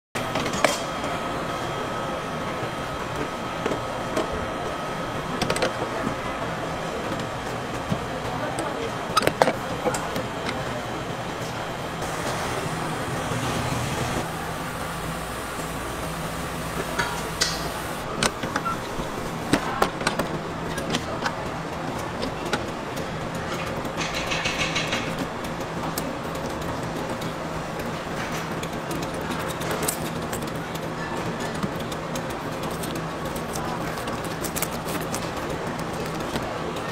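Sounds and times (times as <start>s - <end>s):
mechanical hum with whine: 0.2s - 36.9s
street traffic hum: 9.4s - 19.8s.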